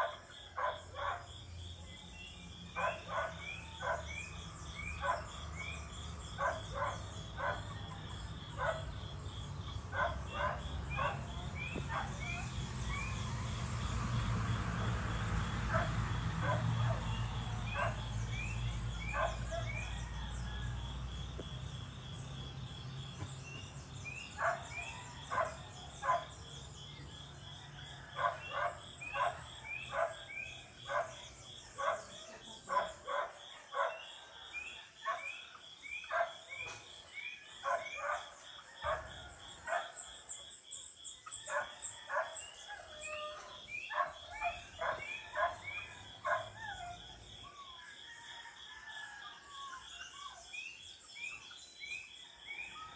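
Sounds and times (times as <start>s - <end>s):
dog barking: 0.0s - 1.3s, 2.7s - 5.8s, 6.4s - 9.0s, 9.9s - 13.2s, 15.7s - 20.2s, 24.3s - 26.4s, 28.1s - 40.0s, 41.4s - 47.1s.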